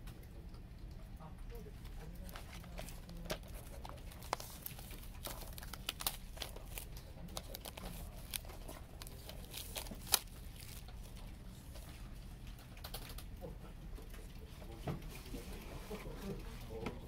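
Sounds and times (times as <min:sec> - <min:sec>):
plastic wrap crinkling: 0:01.8 - 0:13.2.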